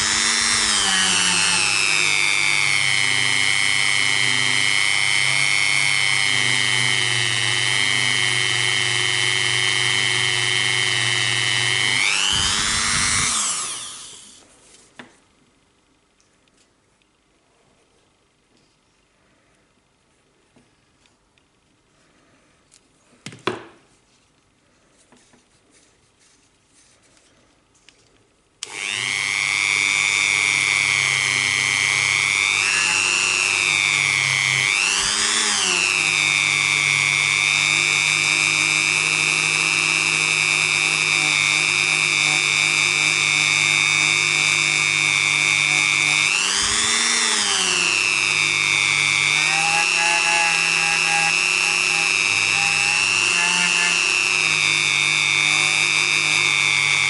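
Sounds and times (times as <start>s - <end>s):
rotary tool high whine: 0.0s - 14.5s, 28.6s - 57.0s.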